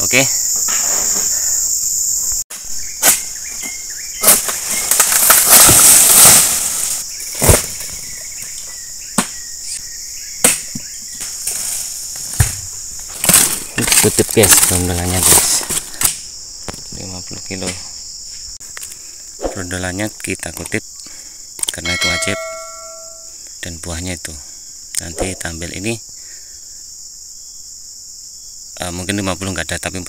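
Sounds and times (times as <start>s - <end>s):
high insect chorus: 0.0s - 30.0s
fronds rustling and crashing down: 3.0s - 8.3s, 11.1s - 15.9s
sharp knocks and thuds: 10.4s - 14.7s.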